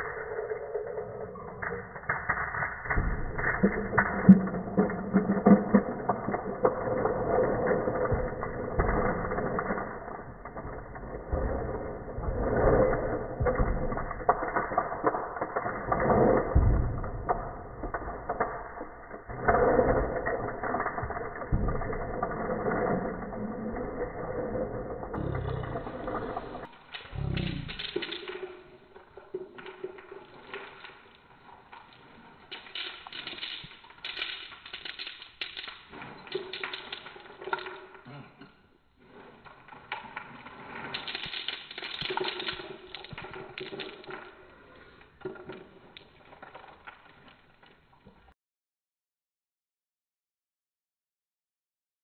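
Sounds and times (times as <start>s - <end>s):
auger grinding hard candies: 17.9s - 38.2s, 39.4s - 47.4s.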